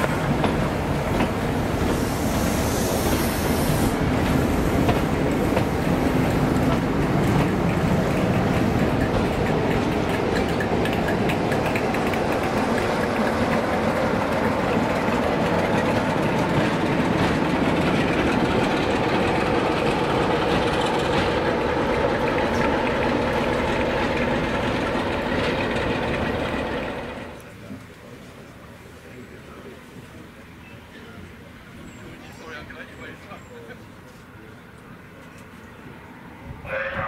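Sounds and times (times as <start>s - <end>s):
wheels on rails: 0.0s - 27.6s
diesel locomotive engine drone: 0.0s - 37.0s.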